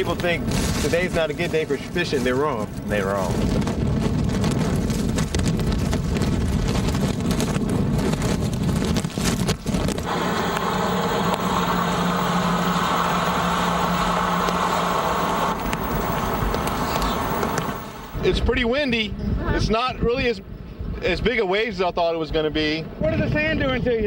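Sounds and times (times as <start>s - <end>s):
vehicle engine humming: 0.0s - 18.3s
wind buffeting microphone: 0.0s - 24.0s.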